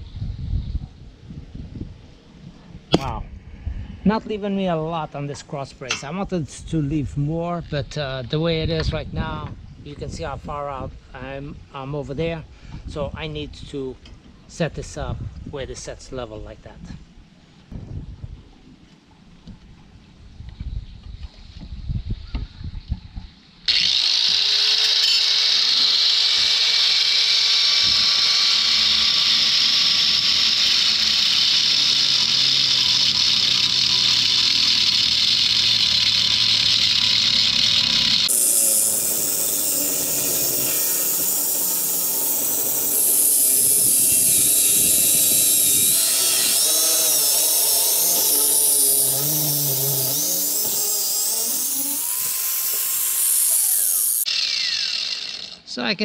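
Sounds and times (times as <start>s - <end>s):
angle grinder cutting metal: 23.7s - 55.7s.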